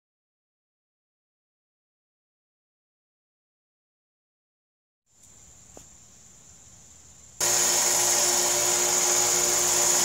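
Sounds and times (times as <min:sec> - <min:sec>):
belt grinder grinding steel: 0:07.4 - 0:10.0.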